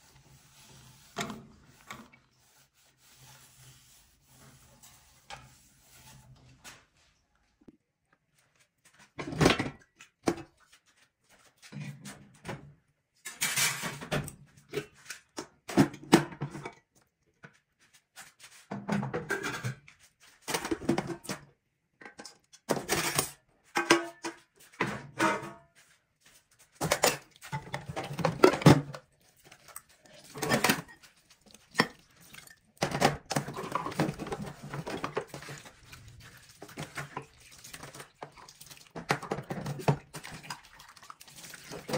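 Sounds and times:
pots and pans clattering: 13.3 - 14.3, 18.8 - 19.9, 22.0 - 25.6, 26.8 - 29.1, 30.2 - 31.1, 31.7 - 35.8, 36.6 - 40.7
cloth scrubbing: 33.6 - 41.9.

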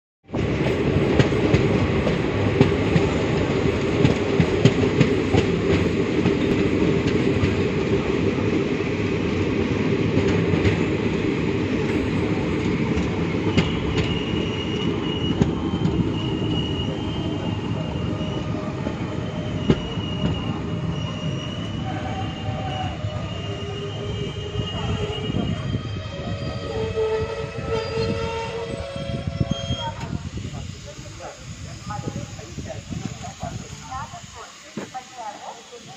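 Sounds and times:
high wheel squeals: 13.2 - 30.7.

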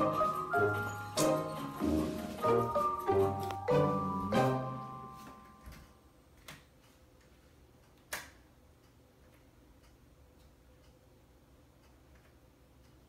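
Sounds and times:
music notes ringing: 0.0 - 6.0.

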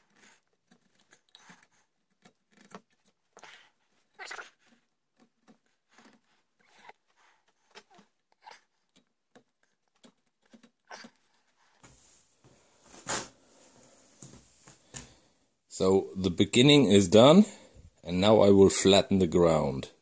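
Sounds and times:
chisel scraping wood: 0.0 - 11.6.

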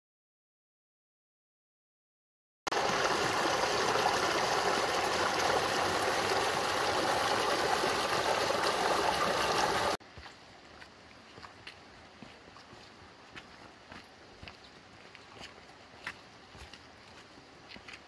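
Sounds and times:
stream rushing: 2.7 - 10.0.

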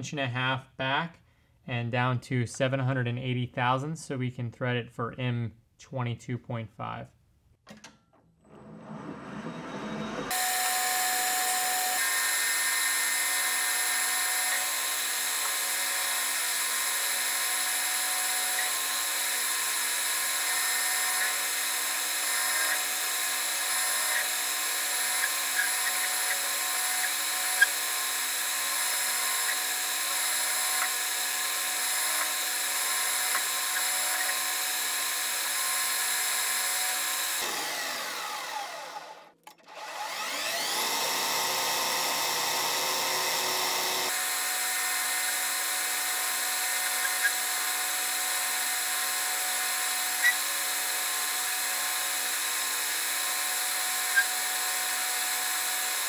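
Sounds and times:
metal lathe machining: 8.6 - 39.2, 39.8 - 56.0.

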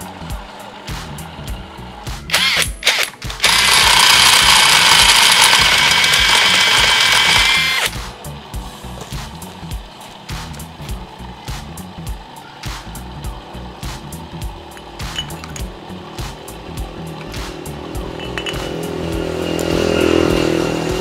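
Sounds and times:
cordless impact driver whirring: 2.3 - 8.0.

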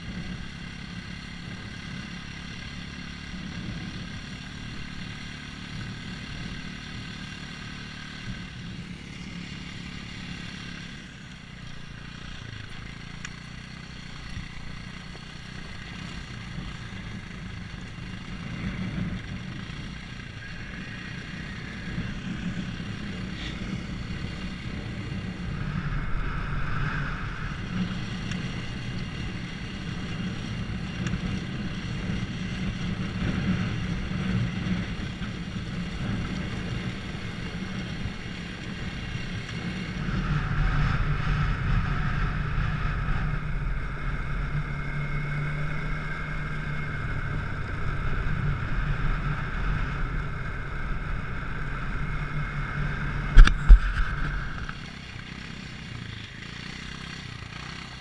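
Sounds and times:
engine drone: 0.0 - 58.0
wind on microphone: 20.4 - 32.3, 38.9 - 44.7, 47.0 - 54.8.

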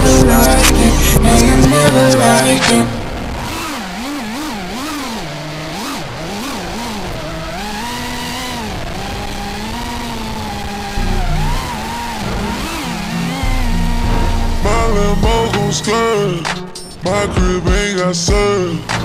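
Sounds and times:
drone motors whining: 0.0 - 17.7
loud low sound: 13.5 - 16.5.

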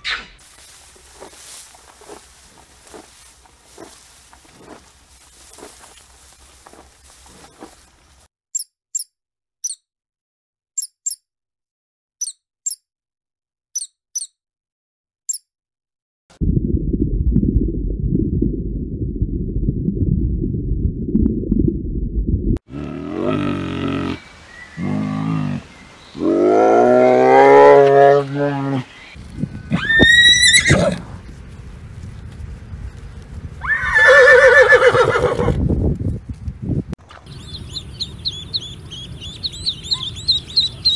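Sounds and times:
faint rustle of grazing animal: 0.4 - 8.3, 29.1 - 29.7, 30.9 - 33.6
high-pitched rodent squeaks: 8.5 - 9.8, 10.8 - 11.2, 12.2 - 12.8, 13.8 - 14.4, 37.4 - 40.9
low thuds: 16.4 - 22.6
horse whinnying: 29.7 - 31.0, 33.6 - 35.6.

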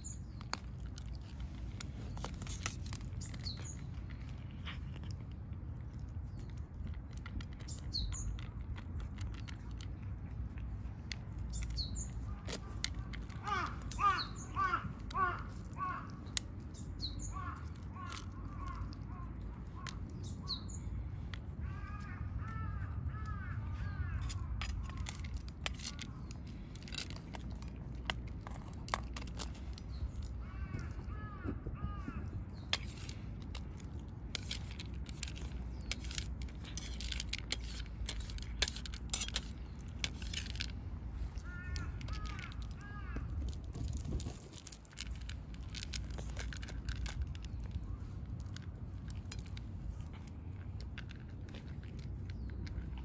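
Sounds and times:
crows cawing: 13.1 - 16.4, 17.2 - 19.3, 21.6 - 24.6, 30.4 - 32.3, 41.4 - 43.4
sharp clicks and ticks: 32.5 - 53.0.

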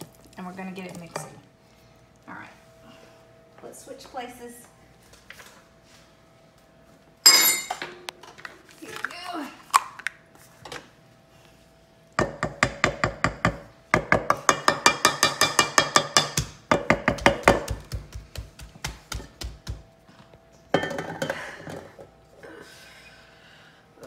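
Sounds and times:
metal bowl clattering: 7.3 - 7.9.

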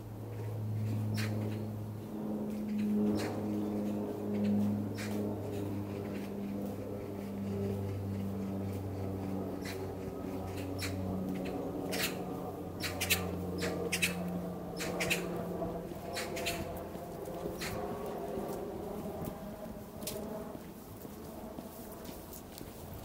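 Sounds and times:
steady low hum: 0.0 - 23.0
footsteps crunching in snow: 15.6 - 23.0.

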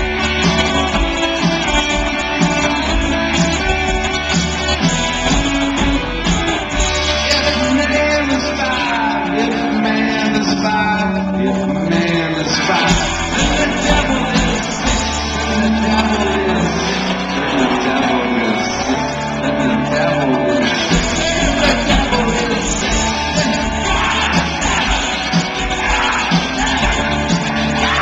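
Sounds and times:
electric guitar: 0.0 - 28.0
rock band playing live: 0.0 - 28.0
sung and shouted vocals: 7.2 - 28.0.

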